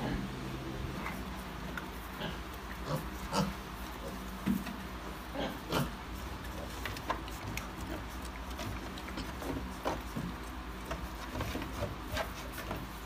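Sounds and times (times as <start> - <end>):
piglets grunting: 0.0 - 4.4, 5.0 - 9.8
steady low hum: 0.0 - 13.0
trotters shuffling on concrete: 0.8 - 13.0.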